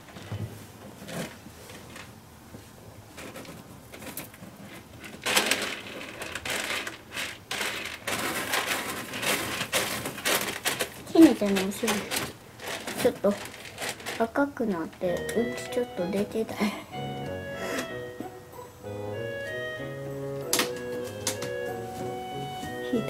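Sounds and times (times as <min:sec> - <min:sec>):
cat scratching in litter box: 0:03.1 - 0:14.8.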